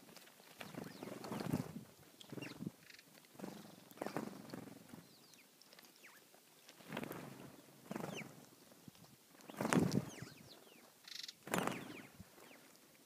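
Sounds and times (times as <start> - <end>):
wings fluttering: 0.0 - 12.8
sparrows chirping: 0.7 - 1.5, 2.2 - 6.3, 7.3 - 8.4, 9.5 - 12.7.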